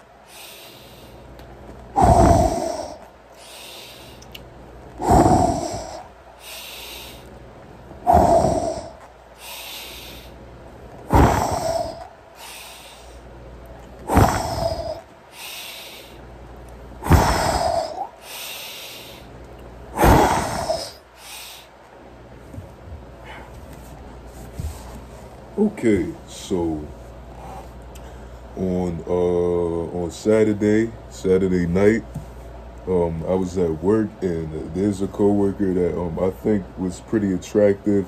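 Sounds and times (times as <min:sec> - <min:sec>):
man breathing hard: 0:00.0 - 0:01.3, 0:01.9 - 0:04.4, 0:05.0 - 0:07.4, 0:08.0 - 0:10.5, 0:11.1 - 0:13.4, 0:14.0 - 0:16.3, 0:17.0 - 0:21.8, 0:23.2 - 0:23.8.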